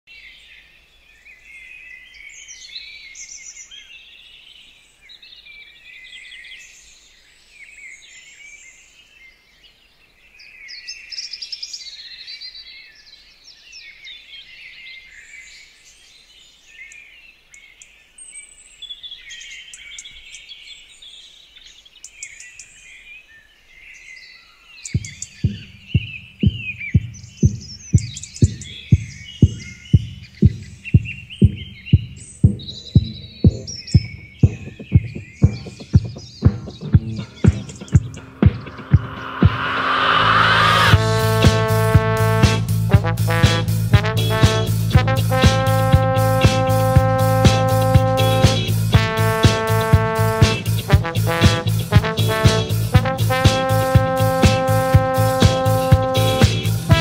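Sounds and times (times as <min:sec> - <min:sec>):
small birds chirping and singing: 0:00.1 - 0:38.4
electronic drum beat: 0:25.0 - 0:57.0.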